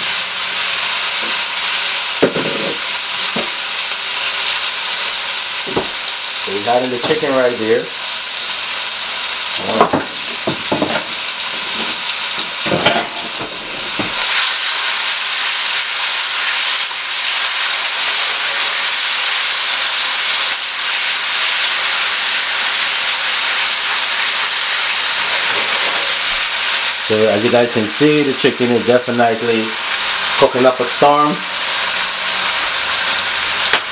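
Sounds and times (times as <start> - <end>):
chicken sizzling in hot oil: 0.0 - 33.9
utensil scraping a pan: 25.2 - 26.3.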